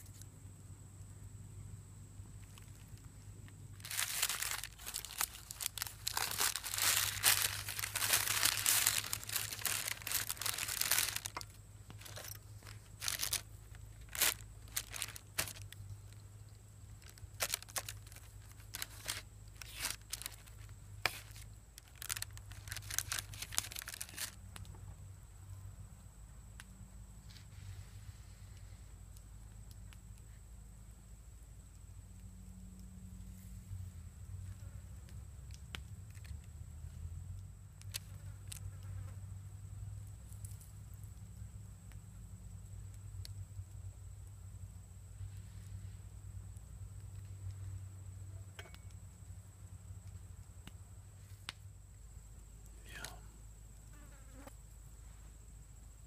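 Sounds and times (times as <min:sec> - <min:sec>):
stiff paper crinkling: 0:03.8 - 0:15.8, 0:17.0 - 0:24.4.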